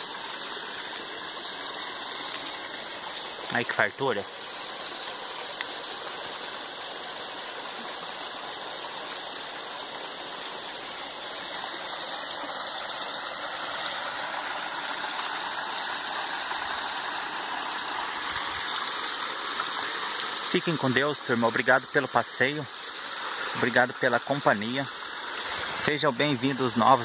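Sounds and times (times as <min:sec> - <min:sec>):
running water streaming: 0:00.0 - 0:27.0.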